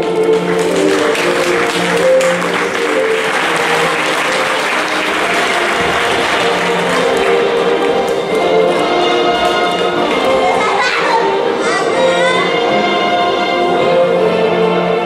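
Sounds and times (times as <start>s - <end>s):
audience applauding: 0.0s - 11.2s
music: 0.0s - 15.0s.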